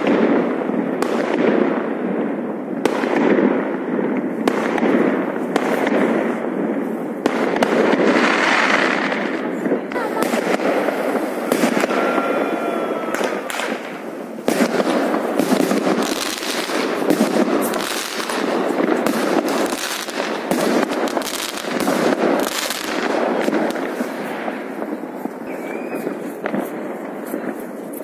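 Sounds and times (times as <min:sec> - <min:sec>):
fireworks and firecrackers crackling: 0:00.0 - 0:28.0
rising whistle: 0:25.5 - 0:26.2.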